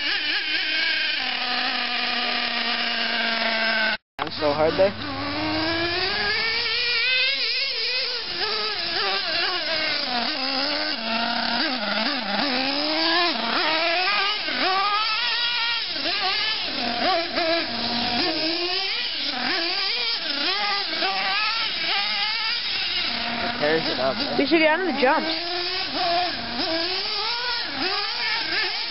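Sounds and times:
nitro engine revving: 0.0 - 28.9.

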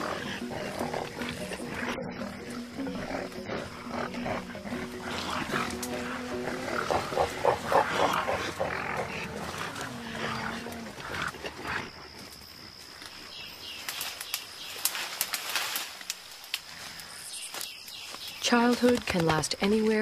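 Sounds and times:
gorillas calling: 0.0 - 11.2.

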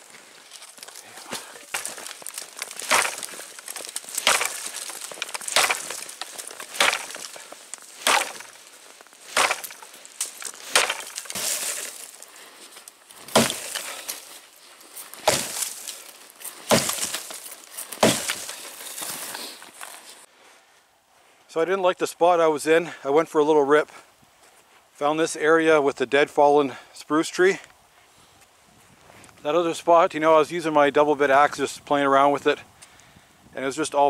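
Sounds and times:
axe chopping wood: 1.3 - 8.7, 9.3 - 12.2, 13.3 - 14.2, 15.2 - 18.7.

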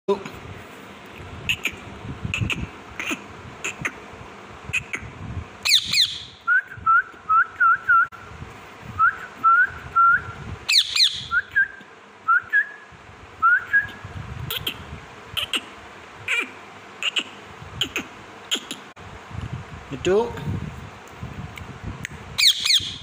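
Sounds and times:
parakeet whistled chirps: 5.6 - 8.1, 9.0 - 14.8, 22.4 - 23.0
parakeet harsh screeches: 22.4 - 23.0.

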